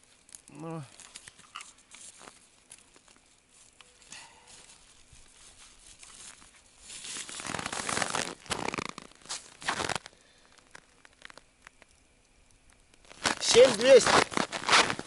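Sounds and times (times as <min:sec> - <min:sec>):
crunching frozen snow: 0:00.0 - 0:12.1, 0:12.7 - 0:15.0
clothing rustling: 0:04.6 - 0:10.1.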